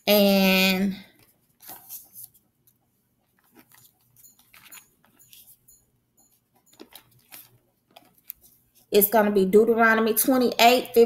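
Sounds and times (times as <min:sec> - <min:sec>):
thin pages rustling: 0:01.2 - 0:05.5, 0:06.8 - 0:08.9.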